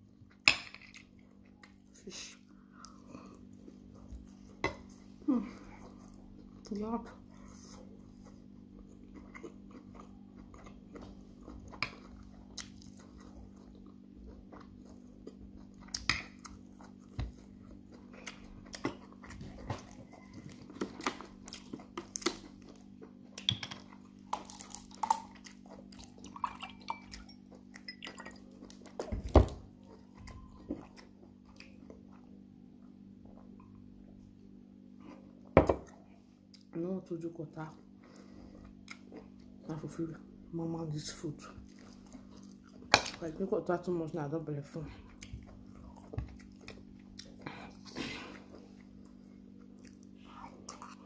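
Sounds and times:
chewing and lip smacking: 0:08.2 - 0:29.1, 0:29.7 - 0:33.8, 0:38.1 - 0:39.6, 0:41.4 - 0:42.9, 0:45.0 - 0:51.0.

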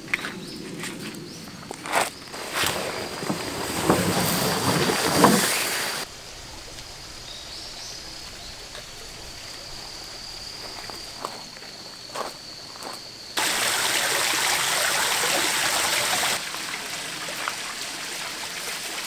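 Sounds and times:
tent fabric rustling: 0:01.8 - 0:06.0
faint high whine: 0:02.3 - 0:14.9.

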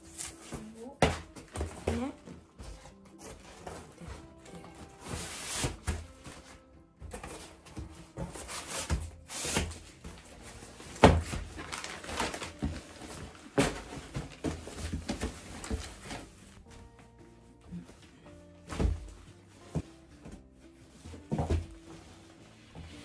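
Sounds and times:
light background music: 0:00.0 - 0:23.0
plastic board rustling and knocking: 0:04.6 - 0:16.6.

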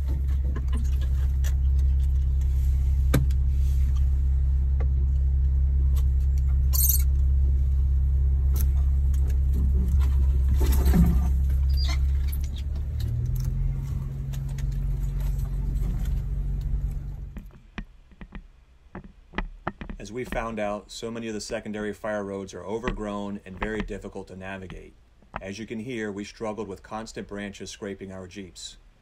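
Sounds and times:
car engine droning: 0:00.0 - 0:18.1
branches scraping car body: 0:08.5 - 0:18.2.

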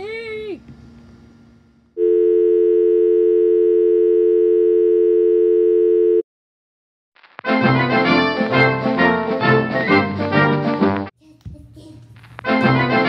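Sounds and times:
music: 0:07.5 - 0:11.1, 0:12.5 - 0:13.0.

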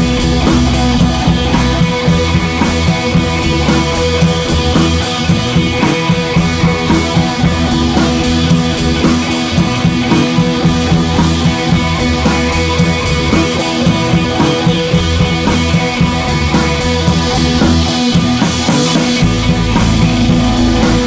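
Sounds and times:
rock music with drums: 0:00.0 - 0:21.0.

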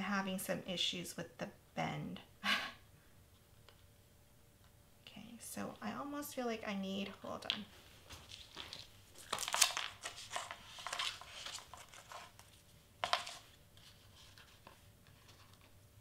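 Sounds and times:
tape crinkling and tearing: 0:08.1 - 0:13.4.

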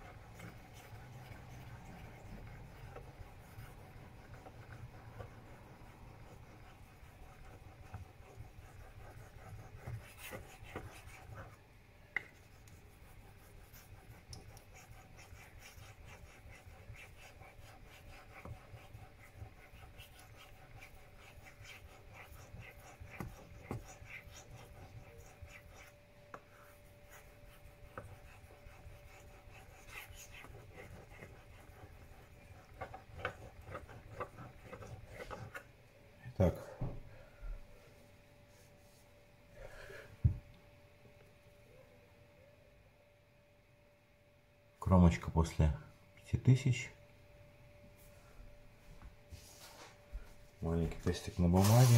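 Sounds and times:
razor scraping on whetstone: 0:13.1 - 0:26.0, 0:27.2 - 0:35.6, 0:51.6 - 0:51.9.

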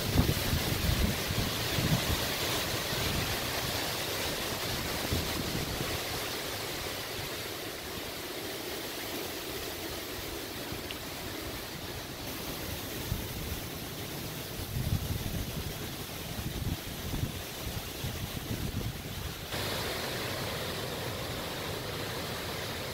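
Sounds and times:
wind buffeting microphone: 0:00.0 - 0:06.2, 0:14.4 - 0:19.6
wind roaring through trees: 0:00.0 - 0:22.9.

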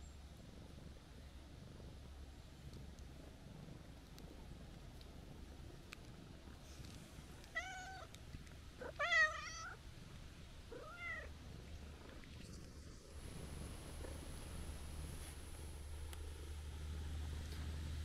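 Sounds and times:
cat purring: 0:00.1 - 0:18.0
cat meowing: 0:07.4 - 0:08.1, 0:08.8 - 0:09.8, 0:10.7 - 0:11.3.

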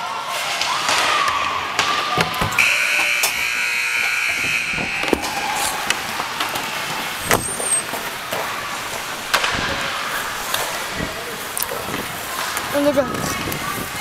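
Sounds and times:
skates and sticks clacking on ice: 0:00.0 - 0:03.4, 0:05.0 - 0:14.0
scoreboard buzzer blast: 0:02.6 - 0:06.0.

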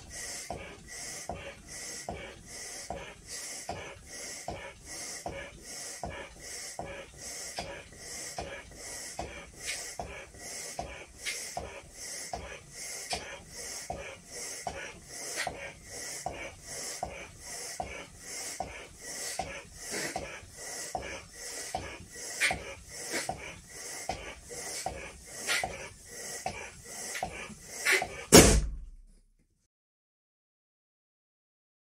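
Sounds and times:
hissing inhale: 0:00.0 - 0:28.4
blowing up balloon by mouth: 0:02.9 - 0:28.7
balloon bursting bang: 0:28.3 - 0:29.0.

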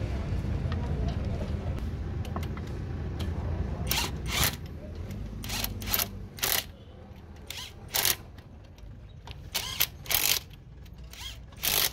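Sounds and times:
impact wrench bursts: 0:03.8 - 0:04.7, 0:05.3 - 0:06.8, 0:07.4 - 0:08.3, 0:09.4 - 0:11.9.

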